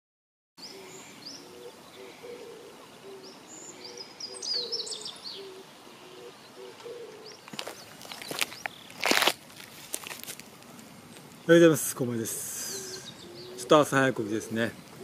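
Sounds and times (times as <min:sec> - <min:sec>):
bird high chirps: 0:00.6 - 0:09.0, 0:12.5 - 0:15.0.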